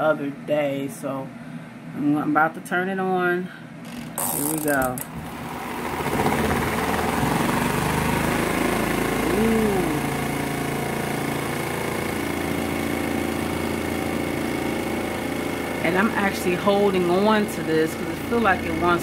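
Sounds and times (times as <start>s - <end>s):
machine vibrating on counter: 3.8s - 19.0s
spin-dryer motor whirring: 3.8s - 19.0s.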